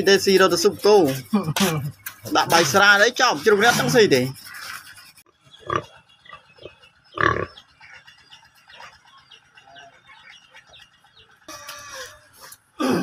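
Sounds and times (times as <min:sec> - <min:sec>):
pig grunting: 0:01.2 - 0:04.9, 0:05.6 - 0:07.6.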